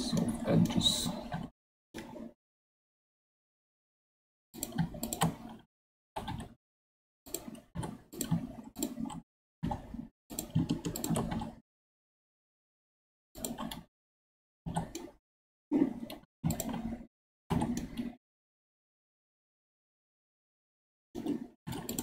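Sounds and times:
keyboard and mouse clicking: 4.6s - 5.6s, 6.2s - 6.6s, 7.3s - 11.6s, 13.4s - 13.9s, 14.7s - 15.2s, 15.9s - 16.9s, 17.5s - 18.1s, 21.2s - 22.0s.

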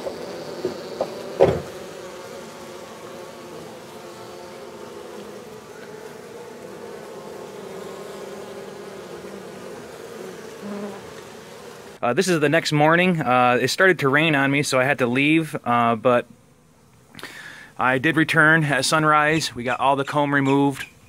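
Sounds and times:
honeybees buzzing: 0.0s - 13.2s
single thump: 0.6s - 1.8s.

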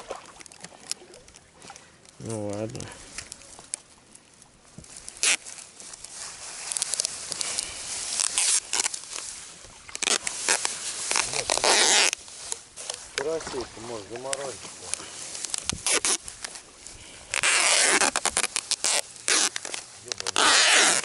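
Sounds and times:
plastic bag rustling: 4.9s - 21.0s.

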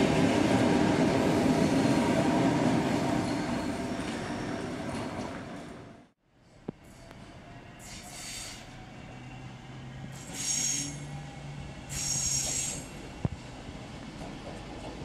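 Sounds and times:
low train hum: 0.0s - 15.0s
train wheels squealing: 6.9s - 13.0s.

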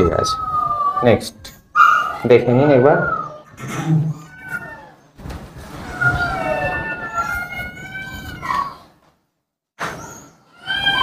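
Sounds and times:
pet animal whining cry: 0.0s - 5.1s, 9.9s - 11.0s.

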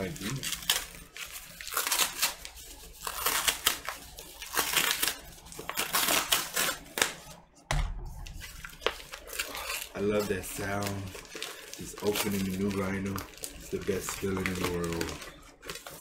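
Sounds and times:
cardboard being torn open: 0.0s - 7.2s
dull thump: 7.7s - 8.3s.

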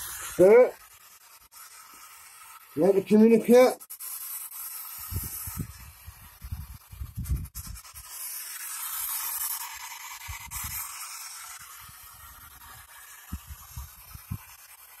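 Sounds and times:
radio static sweeping: 0.0s - 0.9s, 2.6s - 3.8s.

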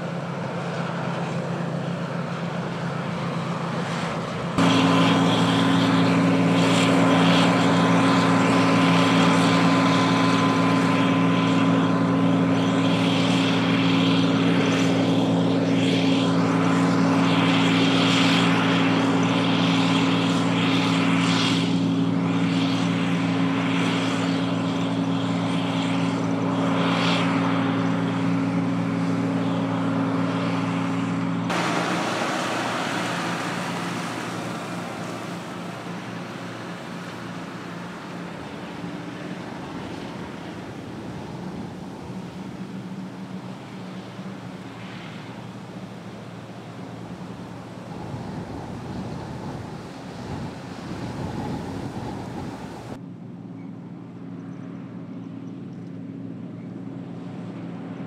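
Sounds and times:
combine harvester running: 0.0s - 53.4s
faint high whine: 31.5s - 53.0s.

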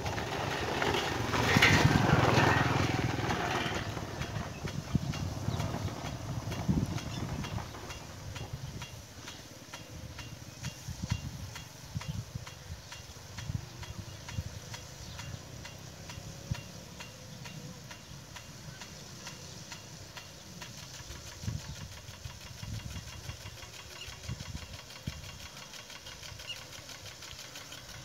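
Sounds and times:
low uneven rumble: 0.0s - 9.1s
rain gun mechanical ticking: 0.0s - 28.0s.

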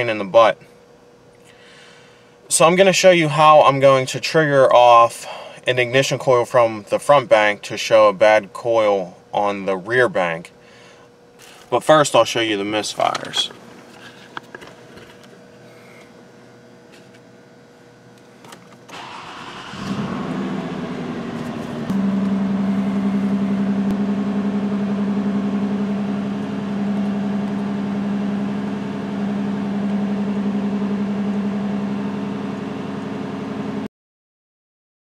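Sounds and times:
car engine cranking and idling: 18.8s - 33.8s.

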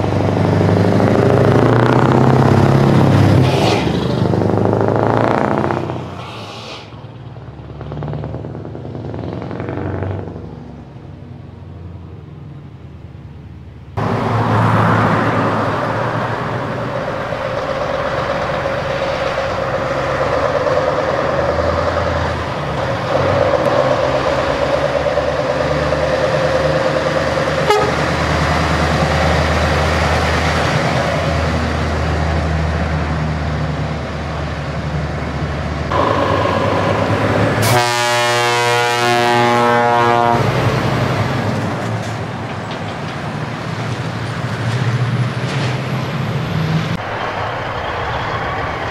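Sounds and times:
truck diesel engines rumbling: 0.0s - 48.9s
air horn blast: 27.6s - 28.2s, 35.9s - 40.8s.

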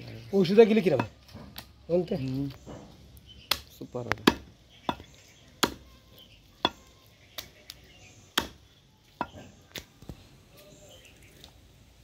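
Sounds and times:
cleaver chopping on wooden block: 3.5s - 5.9s, 8.3s - 8.6s.

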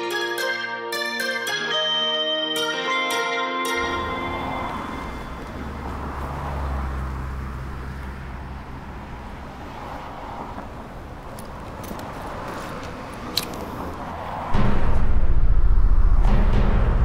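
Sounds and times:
road traffic rumble: 3.8s - 17.0s.

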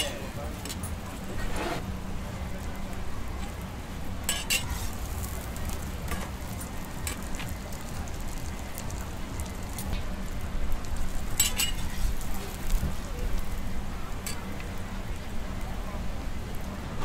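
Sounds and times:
pancake sizzling in hot oil: 1.8s - 17.0s.

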